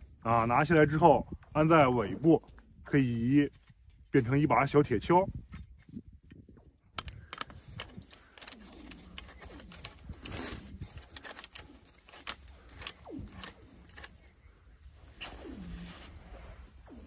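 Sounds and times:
sharp metal clicks: 0:06.9 - 0:14.2.

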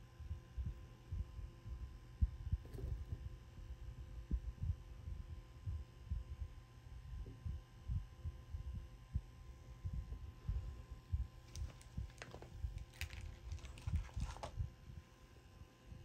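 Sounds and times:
faint steady hum: 0:00.0 - 0:16.0
beads and wire clicking: 0:11.5 - 0:14.5.

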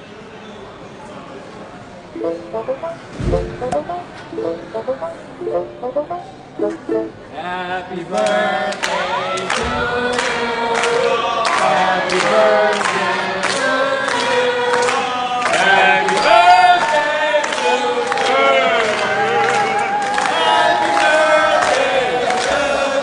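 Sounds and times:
group singing: 0:08.1 - 0:19.7
people clapping in time: 0:08.1 - 0:23.0.

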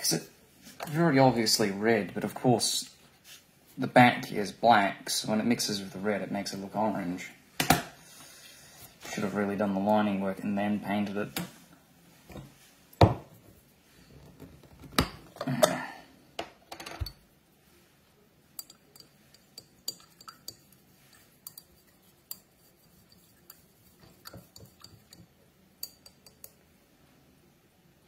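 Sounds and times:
light glass clinks and taps: 0:16.9 - 0:17.2, 0:18.6 - 0:26.6.

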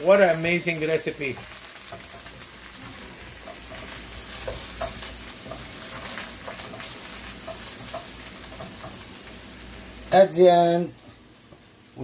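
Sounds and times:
chicken wings sizzling in pot: 0:00.0 - 0:12.0
wooden spoon knocking on pot: 0:03.4 - 0:09.0.

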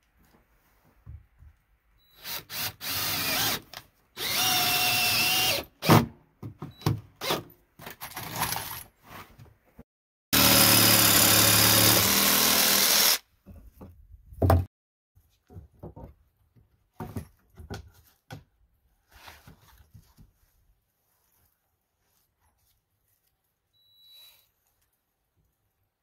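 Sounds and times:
cordless drill driving screws: 0:02.1 - 0:05.7, 0:10.4 - 0:13.2
jigsaw cutting board: 0:10.4 - 0:13.2.

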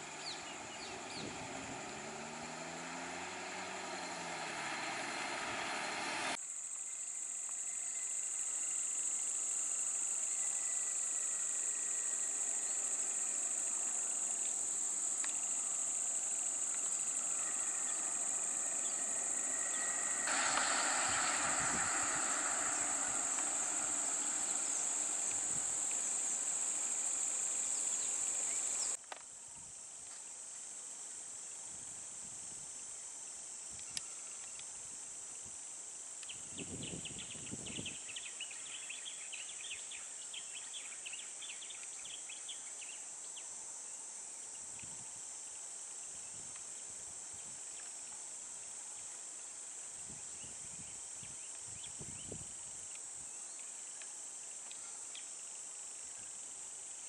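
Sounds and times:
engine and road noise: 0:00.0 - 0:06.6, 0:09.0 - 0:29.0
high-pitched insect drone: 0:00.0 - 0:29.0.

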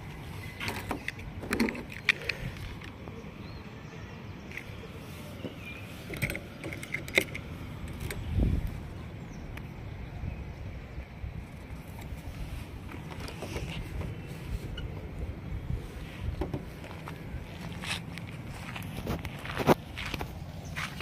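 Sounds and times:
car keys jingling on metal: 0:06.0 - 0:08.3.

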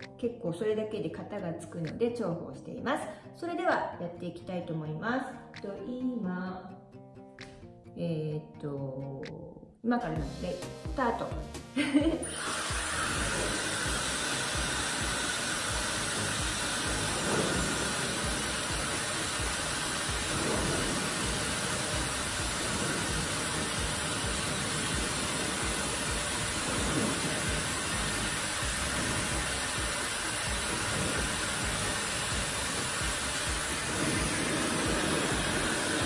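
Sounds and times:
hair dryer running: 0:11.8 - 0:36.0.

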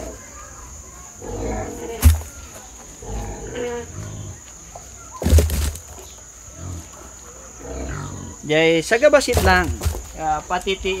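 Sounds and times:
farm animal calls: 0:06.0 - 0:08.7
loud thump: 0:09.3 - 0:10.0.

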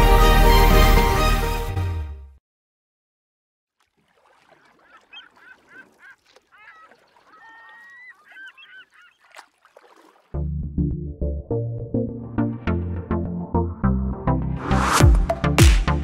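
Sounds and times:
faint gulls calling: 0:03.8 - 0:10.3.

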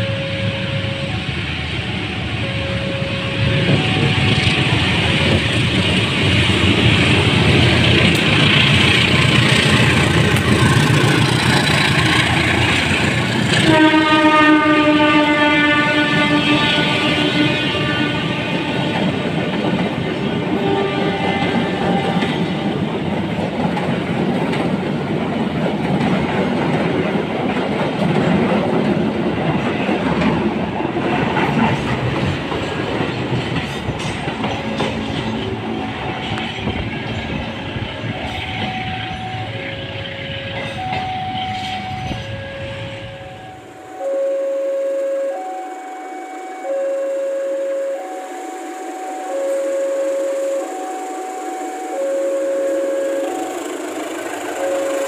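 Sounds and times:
two-tone level-crossing alarm: 0:00.0 - 0:23.9, 0:33.6 - 0:55.0
train wheels running on rails: 0:00.0 - 0:44.4, 0:45.3 - 0:55.0.

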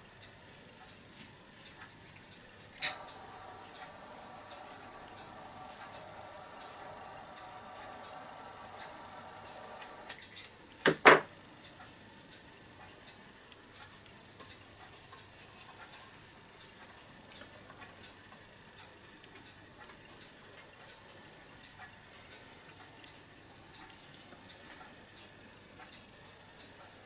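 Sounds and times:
faint irregular ticking: 0:00.0 - 0:27.0
torch flame hissing: 0:02.8 - 0:10.2.

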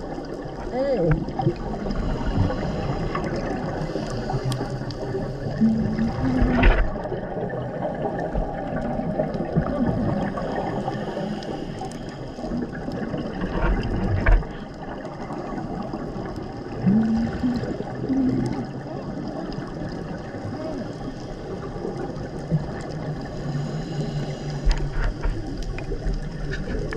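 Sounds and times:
underwater water noise: 0:00.0 - 0:26.9
bubbling exhalations: 0:00.6 - 0:11.5, 0:12.4 - 0:20.7
diver regulator breathing: 0:01.8 - 0:06.9, 0:10.6 - 0:12.9, 0:23.2 - 0:25.5.

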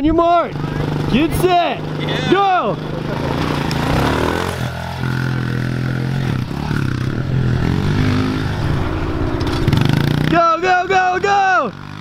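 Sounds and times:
pit bike engine revving: 0:00.2 - 0:12.0.

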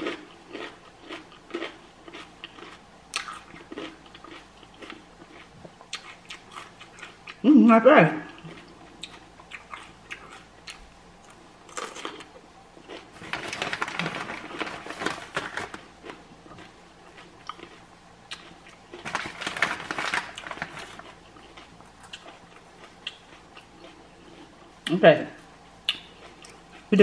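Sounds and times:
chip bag crinkling: 0:11.7 - 0:12.2, 0:12.9 - 0:17.8, 0:18.4 - 0:22.4.

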